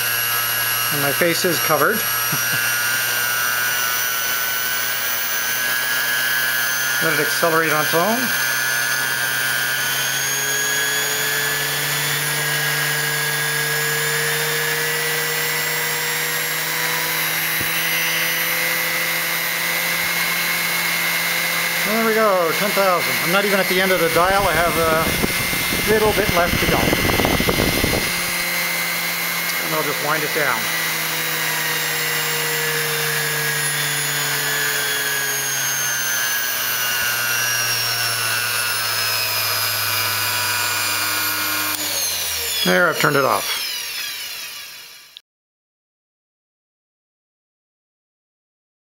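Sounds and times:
bench grinder motor whining: 0:00.0 - 0:45.2.

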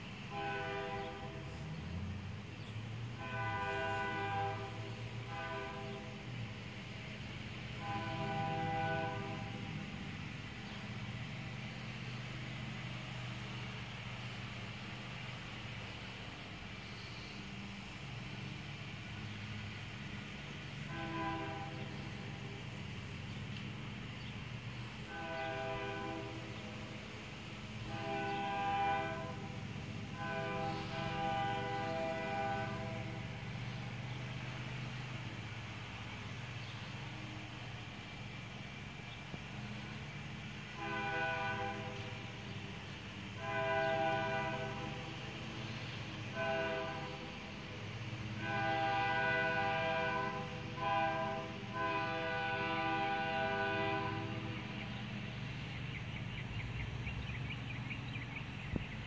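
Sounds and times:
locomotive air horn blasts: 0:00.0 - 0:02.0, 0:03.0 - 0:11.4, 0:18.4 - 0:55.0
low engine rumble: 0:00.0 - 0:59.0.

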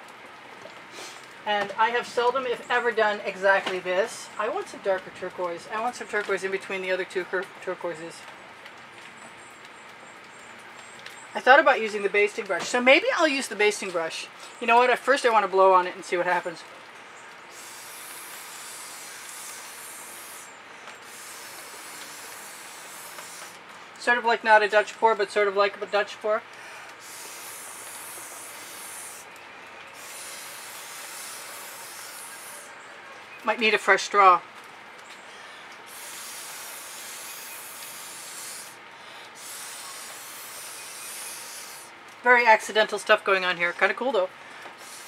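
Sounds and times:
breath blown through straw: 0:17.5 - 0:23.6, 0:26.6 - 0:32.8, 0:35.8 - 0:42.0, 0:44.8 - 0:45.0.

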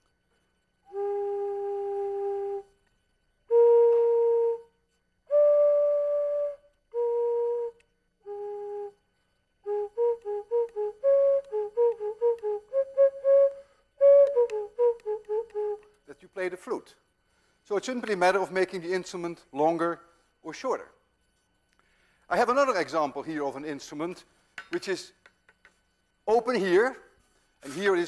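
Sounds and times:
wooden flute notes: 0:00.6 - 0:16.8.

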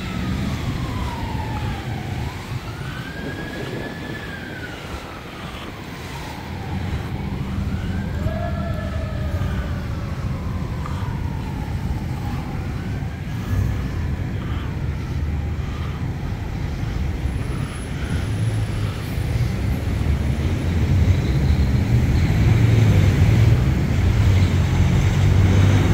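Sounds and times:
cars passing: 0:00.0 - 0:25.9
fire engine siren wailing: 0:00.0 - 0:25.9
street traffic rumble: 0:00.0 - 0:25.9.

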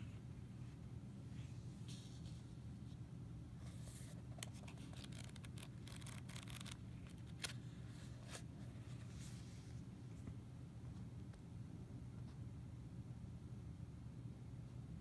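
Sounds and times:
faint low hum: 0:00.0 - 0:15.0
pages rustling: 0:03.6 - 0:09.5.

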